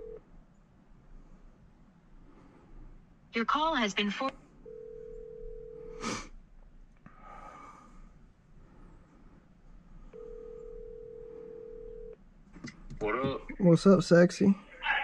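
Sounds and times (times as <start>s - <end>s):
telephone ringback tone: 0.0s - 0.2s, 4.6s - 6.0s, 10.2s - 12.2s.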